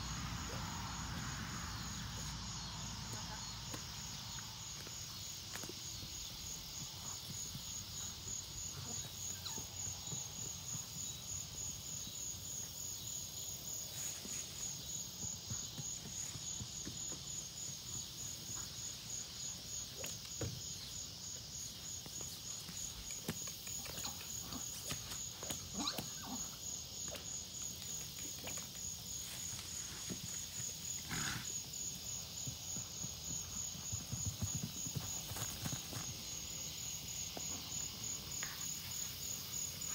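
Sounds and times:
insects chirping: 0:00.0 - 0:39.9
hooves thudding on grass: 0:27.1 - 0:38.6.

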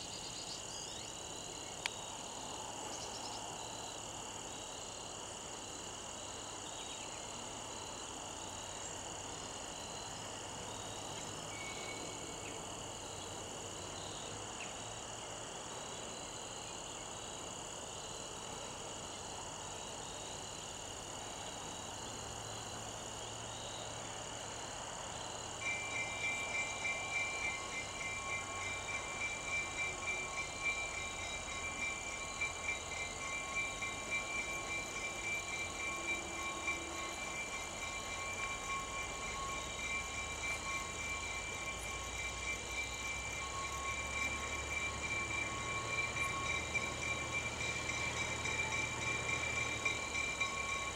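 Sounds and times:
crickets and insects chirping: 0:00.0 - 0:50.9
diesel locomotive running: 0:18.2 - 0:50.9
crossing warning bell ringing: 0:25.6 - 0:50.9.

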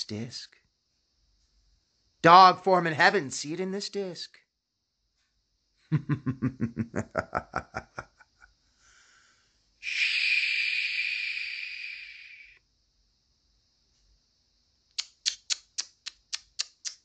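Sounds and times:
man laughing rapidly: 0:05.9 - 0:08.3
man hissing shhh: 0:08.7 - 0:12.6.

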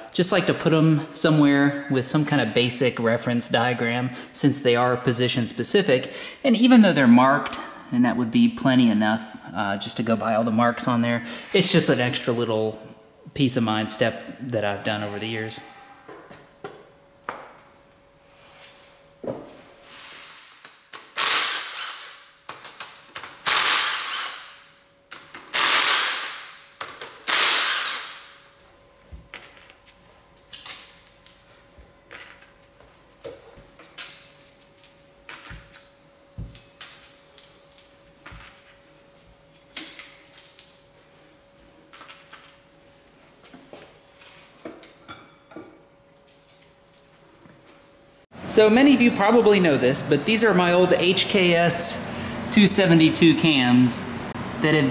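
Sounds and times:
cordless power driver: 0:27.3 - 0:28.2.

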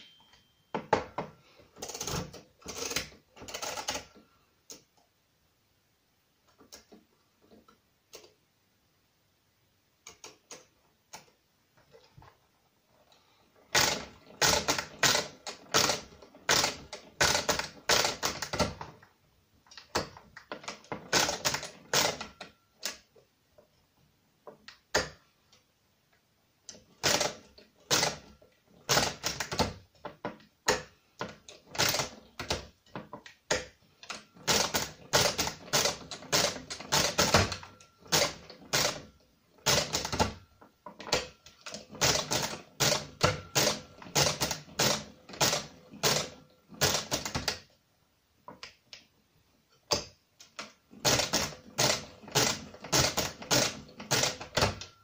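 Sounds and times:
mechanical calculator clacking: 0:01.8 - 0:04.2, 0:13.7 - 0:18.9, 0:19.8 - 0:23.0, 0:26.8 - 0:32.8, 0:33.5 - 0:47.7, 0:49.9 - 0:55.0.

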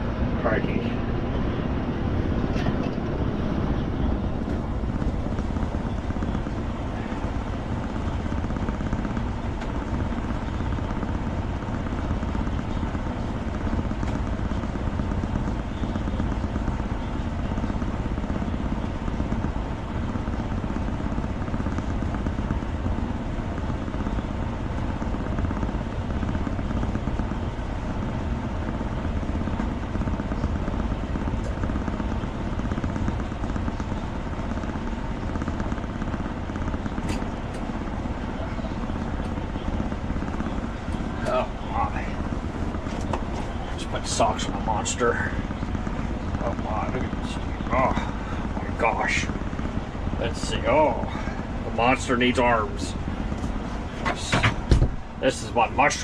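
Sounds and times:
low rumble with faint hum: 0:00.0 - 0:56.0.

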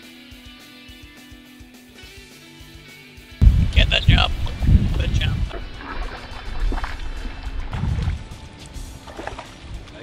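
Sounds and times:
background music: 0:00.0 - 0:10.0
fish splashing and thrashing: 0:05.4 - 0:09.8.

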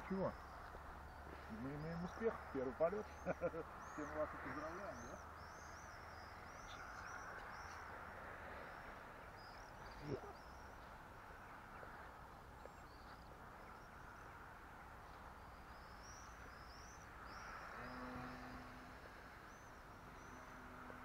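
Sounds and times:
faint steady hum: 0:00.0 - 0:21.0
small birds chirping: 0:00.0 - 0:21.0.

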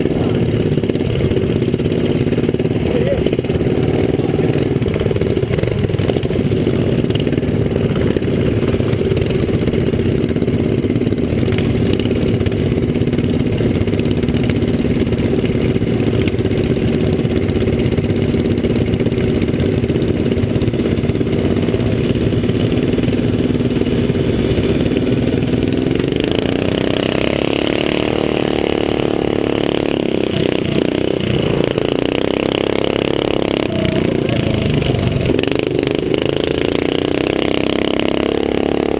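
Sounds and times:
small motorbike engines revving: 0:00.0 - 0:38.9.

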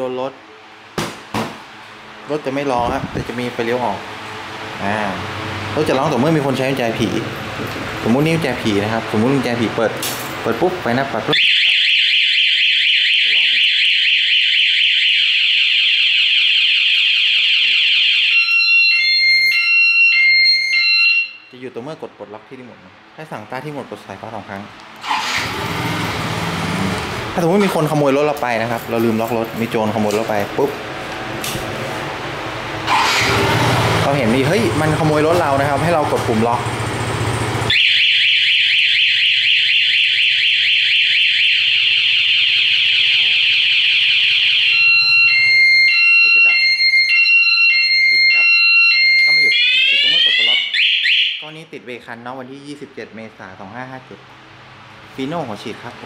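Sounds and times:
motorcycle alarm siren: 0:11.2 - 0:21.6, 0:32.9 - 0:51.6.

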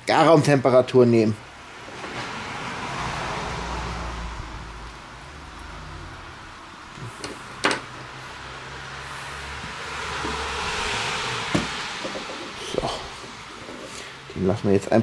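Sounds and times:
steady hiss: 0:05.6 - 0:15.0.

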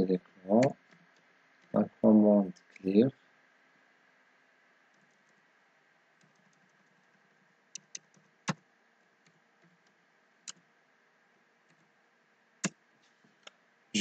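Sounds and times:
faint steady hiss: 0:00.0 - 0:14.0
keyboard keystrokes: 0:07.8 - 0:08.6.

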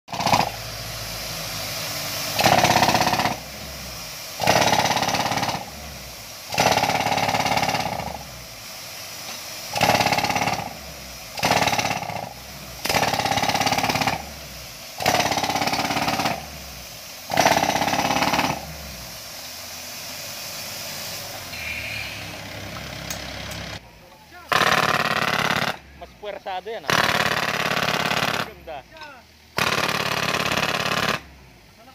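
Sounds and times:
jackhammer hammering into ground: 0:00.1 - 0:00.6, 0:02.3 - 0:03.6, 0:04.4 - 0:05.8, 0:06.5 - 0:08.3, 0:09.7 - 0:16.6, 0:17.3 - 0:18.8, 0:21.6 - 0:23.8, 0:24.5 - 0:25.9, 0:26.8 - 0:28.8, 0:29.5 - 0:31.4
steady drone: 0:20.7 - 0:23.9.

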